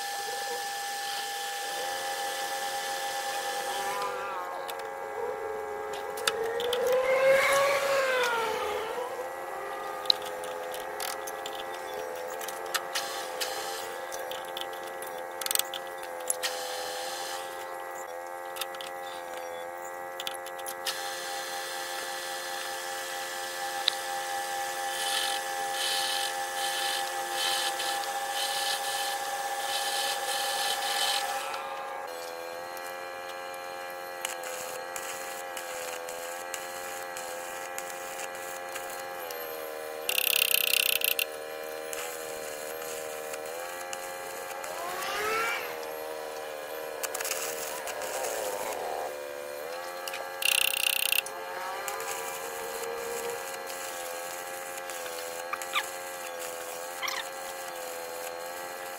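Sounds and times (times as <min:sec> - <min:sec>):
metal lathe whining: 0:00.0 - 0:58.9.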